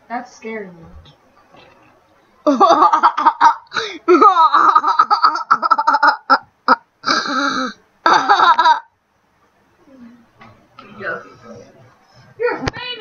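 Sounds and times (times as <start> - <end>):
children laughing: 2.4 - 6.8, 8.1 - 8.9.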